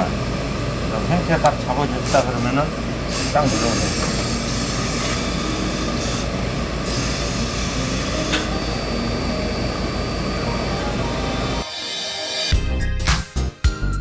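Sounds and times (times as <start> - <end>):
steam iron hissing: 2.0 - 10.3, 11.4 - 12.6.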